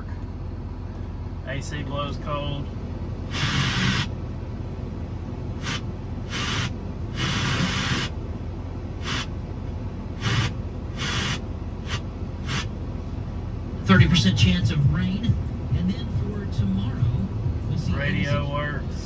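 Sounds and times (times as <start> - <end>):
diesel engine idling hum: 0.0 - 19.0
radio static bursts: 3.3 - 4.1, 5.6 - 8.1, 9.0 - 9.3, 10.2 - 12.7.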